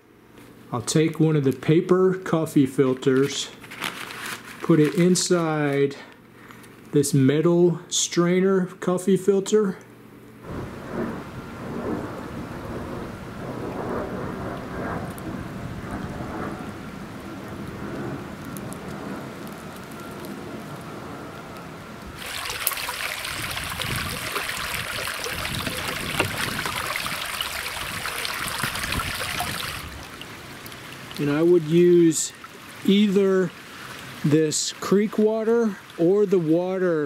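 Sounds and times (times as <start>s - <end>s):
low steady rumble: 10.0s - 31.7s
water splashing and pouring: 22.2s - 36.1s
water streaming from bucket: 22.2s - 37.0s.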